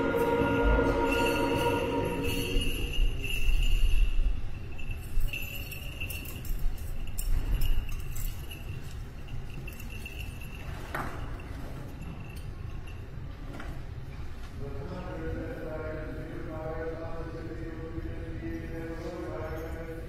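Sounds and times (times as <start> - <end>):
small metal bells jingling: 0.0 - 13.4.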